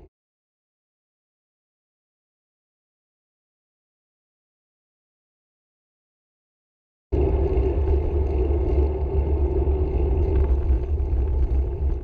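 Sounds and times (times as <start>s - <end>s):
road noise from riding: 7.2s - 12.0s
wind rumble on microphone: 7.2s - 12.0s.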